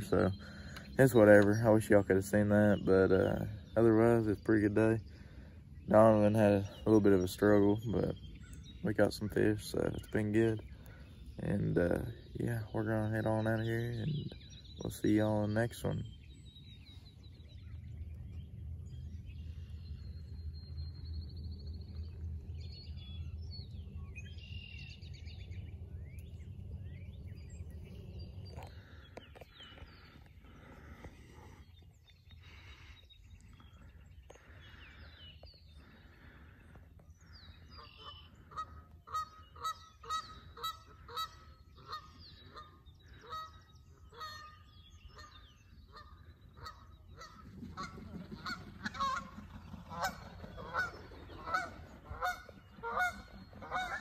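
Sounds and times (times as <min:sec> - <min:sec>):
small birds chirping: 0:00.0 - 0:54.0
geese honking: 0:35.8 - 0:54.0.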